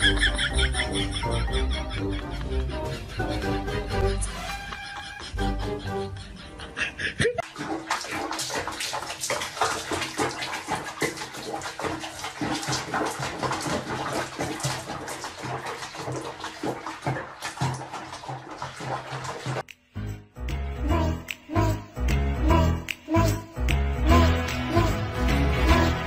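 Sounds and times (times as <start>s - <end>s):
water splashing in basin: 7.4s - 19.7s.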